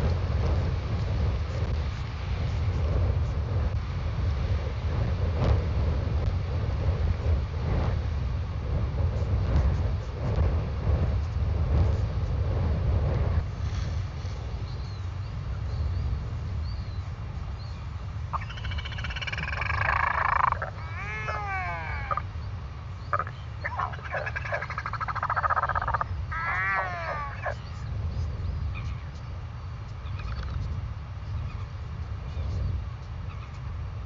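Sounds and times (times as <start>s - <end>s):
wind rumble on microphone: 0.0s - 34.0s
albatross calling: 18.3s - 22.3s, 23.0s - 27.7s.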